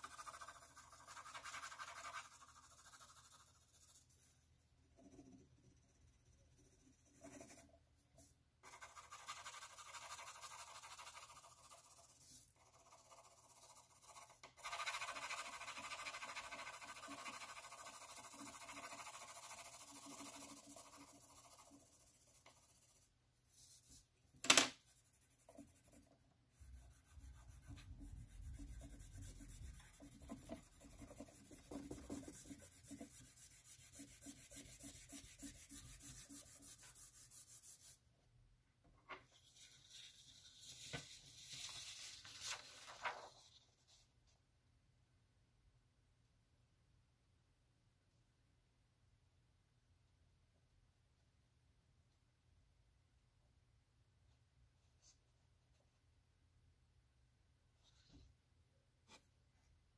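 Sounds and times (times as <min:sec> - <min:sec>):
pencil scratching on paper: 0:00.0 - 0:04.4, 0:05.0 - 0:24.0, 0:24.8 - 0:38.0, 0:39.3 - 0:43.6.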